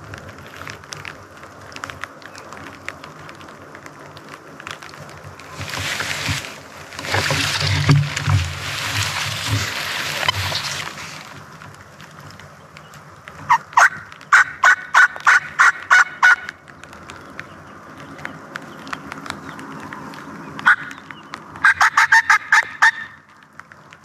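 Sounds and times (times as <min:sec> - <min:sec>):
turkey yelps: 0:13.5 - 0:16.5, 0:20.6 - 0:20.9, 0:21.6 - 0:23.2.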